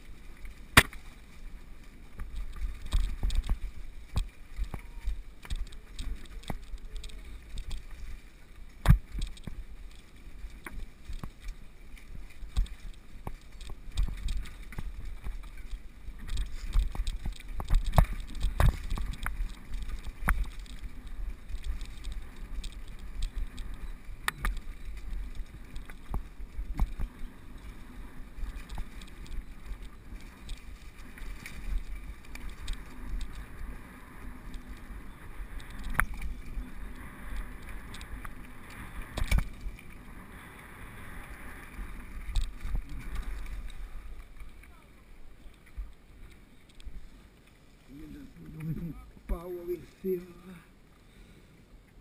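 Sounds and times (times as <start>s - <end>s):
bike clattering over stones: 0.0s - 8.0s, 8.8s - 40.0s
bike tyres and frame rumbling: 0.0s - 52.0s.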